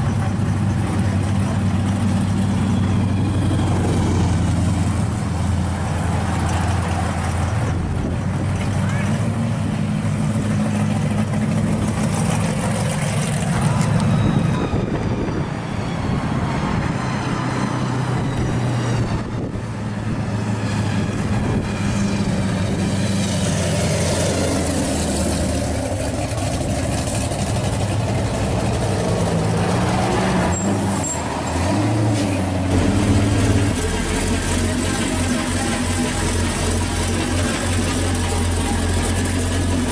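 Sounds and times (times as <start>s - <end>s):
car exhausts rumbling: 0.0s - 15.5s.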